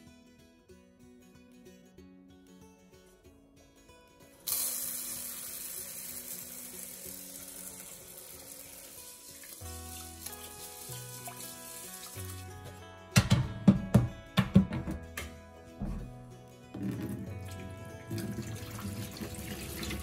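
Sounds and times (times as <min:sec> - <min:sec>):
tap water running into pot: 0:04.5 - 0:12.6, 0:16.7 - 0:20.0.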